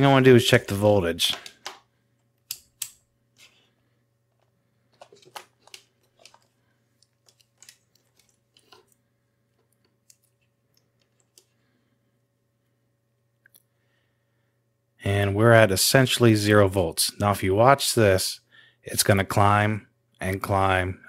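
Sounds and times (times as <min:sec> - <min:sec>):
multimeter switch clicks: 0:02.4 - 0:03.0.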